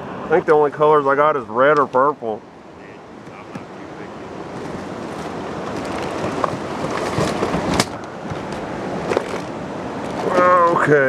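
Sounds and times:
wind on microphone: 2.8 - 10.7
rustles: 2.8 - 10.9
fishing gear knocking: 4.4 - 10.6.

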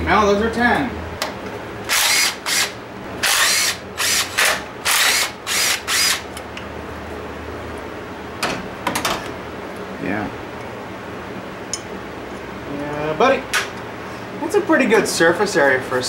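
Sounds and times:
electric impact gun spinning bolts: 1.9 - 6.2.

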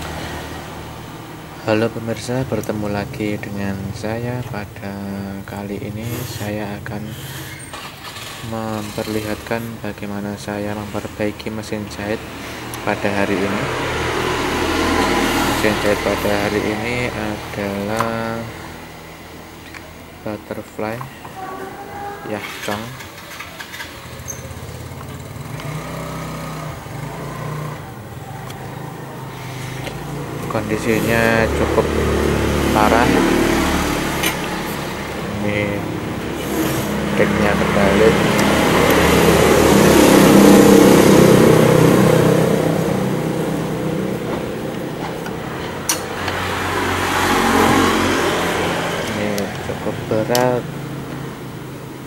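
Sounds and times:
vehicle engine running: 21.3 - 52.0.

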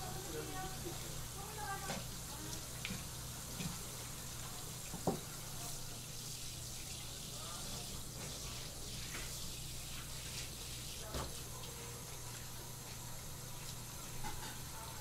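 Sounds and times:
faucet spray hissing on cutting board: 4.9 - 11.5.

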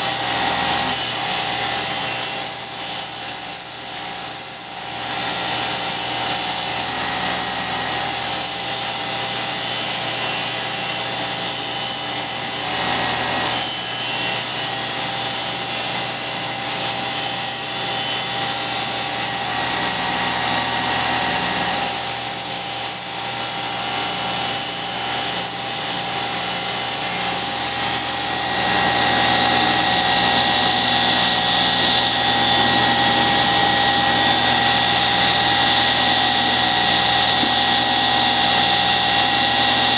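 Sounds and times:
table saw cutting wood: 0.0 - 39.9
table saw humming: 0.0 - 39.9.

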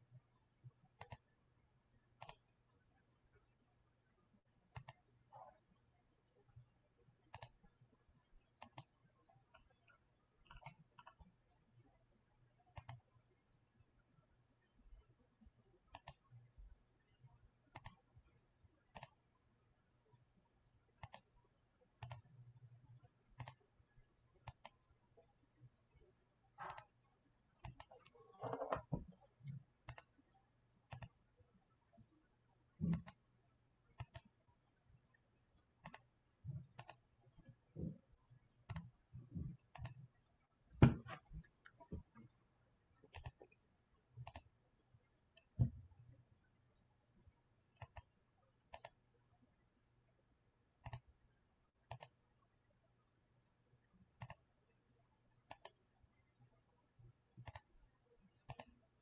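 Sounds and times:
keyboard and mouse clicking: 1.0 - 1.4, 2.2 - 2.5, 4.7 - 5.1, 7.3 - 7.7, 8.6 - 11.4, 12.7 - 13.2, 15.9 - 16.4, 17.7 - 18.1, 18.9 - 19.2, 21.0 - 21.4, 22.0 - 22.4, 23.0 - 23.7, 24.4 - 24.8, 26.6 - 27.0, 27.6 - 30.3, 30.9 - 31.2, 32.8 - 33.2, 34.0 - 34.4, 35.8 - 38.0, 38.7 - 40.1, 43.1 - 43.6, 44.2 - 44.6, 47.8 - 48.1, 48.7 - 49.0, 50.8 - 51.1, 51.8 - 52.2, 54.2 - 54.5, 55.5 - 55.8, 57.4 - 57.7, 58.5 - 58.8.

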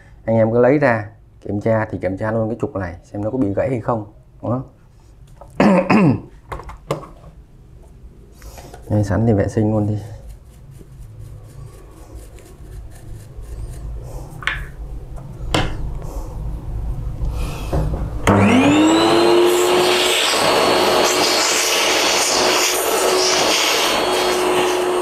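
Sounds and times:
vacuum cleaner motor whine: 18.2 - 25.0.

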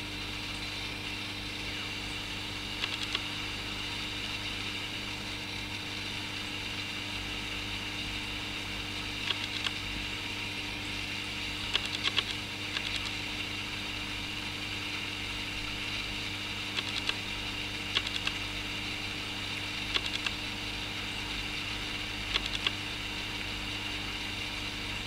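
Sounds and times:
aquarium equipment hum and hiss: 0.0 - 25.0
quick clicks: 2.8 - 3.3, 9.2 - 9.8, 11.7 - 13.2, 16.7 - 17.2, 17.9 - 18.4, 19.9 - 20.4, 22.3 - 22.8.

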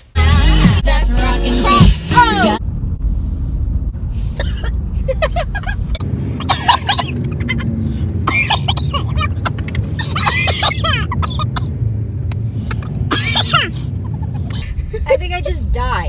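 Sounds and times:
car rumbling while moving: 0.1 - 16.0.

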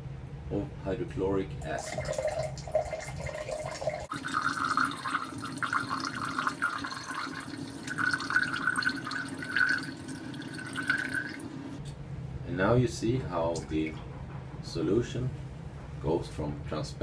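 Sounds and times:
liquid pouring into glass beaker: 1.6 - 11.7.

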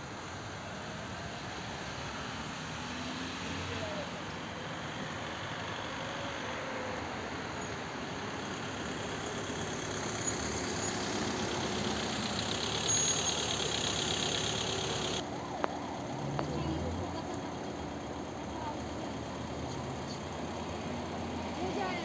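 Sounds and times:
vehicle engine running: 6.8 - 22.0.

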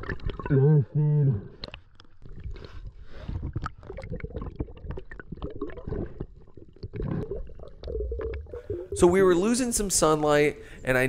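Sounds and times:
sea water sloshing and gurgling: 0.0 - 0.8, 1.5 - 9.2.

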